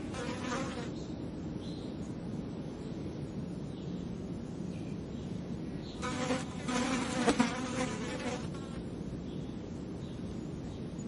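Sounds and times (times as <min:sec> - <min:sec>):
fly buzzing: 0:00.0 - 0:00.9, 0:06.0 - 0:08.8
low steady background rumble: 0:00.0 - 0:11.0.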